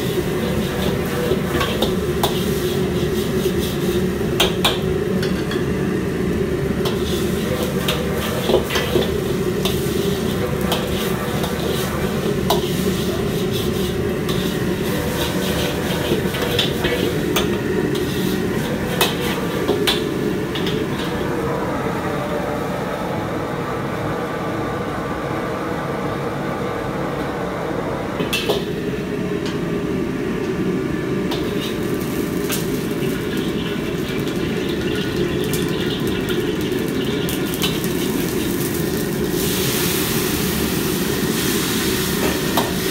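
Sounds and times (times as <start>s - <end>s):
gas burner roaring: 0.0s - 42.9s
metal spatula scraping a wok: 0.1s - 4.2s, 6.8s - 21.2s, 31.4s - 31.9s.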